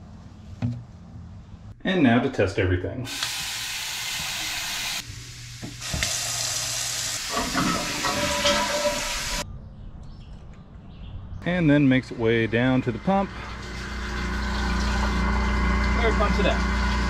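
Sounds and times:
tap water running into sink: 3.1 - 5.0, 5.6 - 9.4, 13.5 - 17.0.

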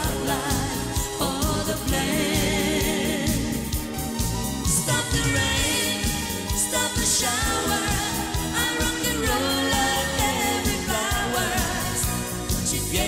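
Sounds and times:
band backing with drum beat: 0.0 - 13.0
woman singing pop song: 0.0 - 13.0.

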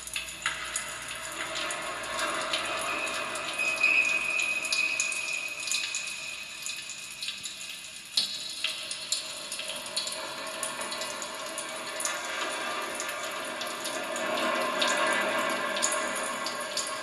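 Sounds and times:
thin high tone: 2.6 - 7.0.

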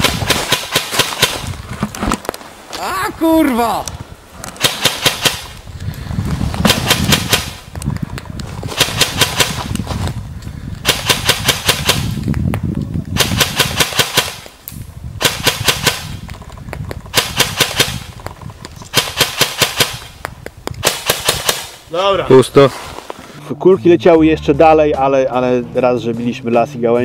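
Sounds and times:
airsoft rifle firing rapid shots: 0.0 - 1.4, 4.6 - 5.5, 6.6 - 7.6, 8.8 - 9.6, 10.8 - 12.1, 13.2 - 14.4, 15.2 - 16.1, 17.1 - 18.0, 18.9 - 20.0, 20.8 - 21.8.

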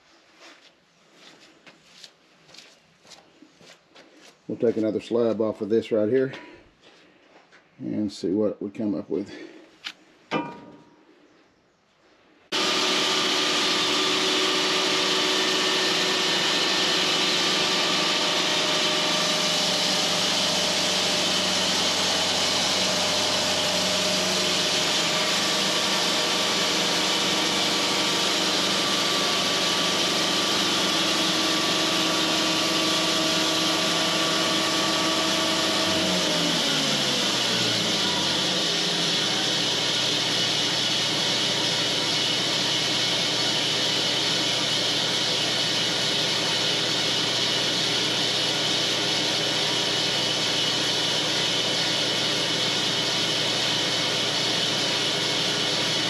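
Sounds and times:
band sawmill sawing: 12.5 - 56.0.

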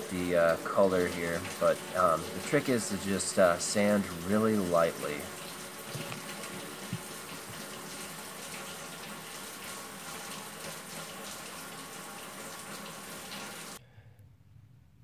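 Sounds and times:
faucet running into metal sink: 0.0 - 13.8
water splashing over knife blade: 0.6 - 8.5.

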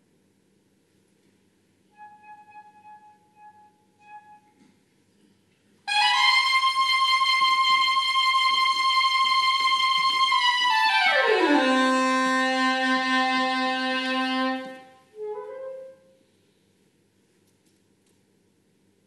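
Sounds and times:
soprano saxophone notes: 1.9 - 4.6, 5.9 - 16.2.

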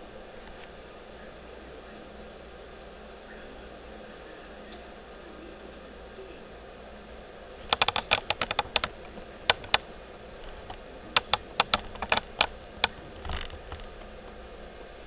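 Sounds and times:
sharp clicks: 7.6 - 14.0.

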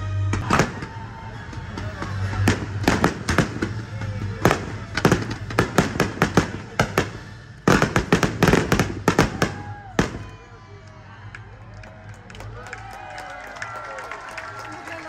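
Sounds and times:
fireworks bangs and crackles: 0.3 - 10.5.

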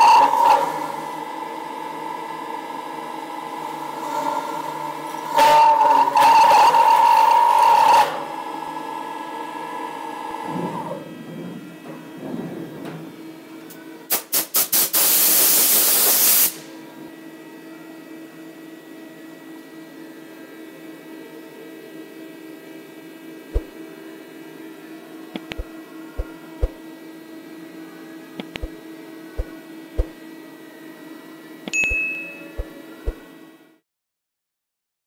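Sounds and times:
mill machine humming: 23.4 - 24.2, 25.0 - 30.6, 31.4 - 33.6.

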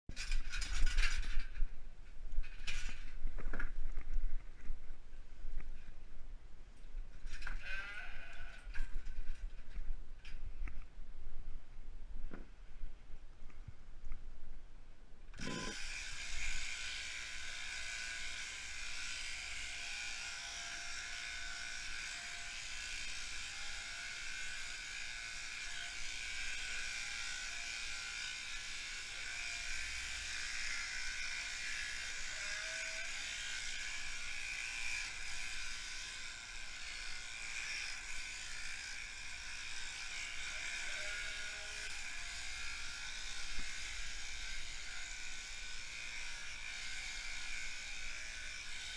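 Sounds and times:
electric shears whirring: 15.4 - 48.9.

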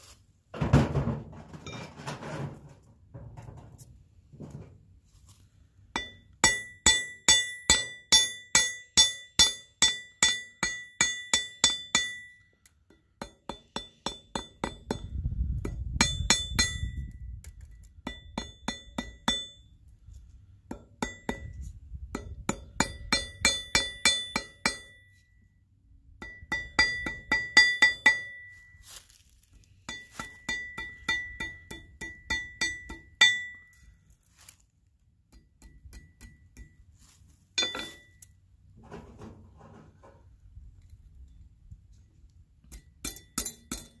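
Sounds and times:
hammer striking metal: 5.9 - 17.2, 18.0 - 19.7, 20.7 - 21.6, 22.2 - 25.4, 26.2 - 28.7, 29.9 - 33.9, 35.3 - 36.8, 37.6 - 38.3, 42.7 - 44.0.

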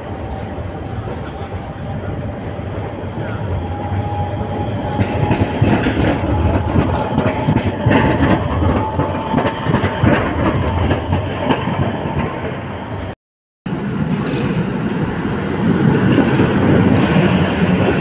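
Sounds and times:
tram wheels rumbling on rails: 0.0 - 18.0.

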